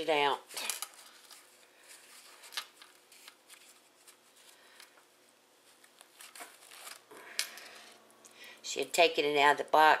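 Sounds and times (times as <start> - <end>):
tissue paper and plastic crinkling: 0.5 - 4.8, 5.6 - 7.9.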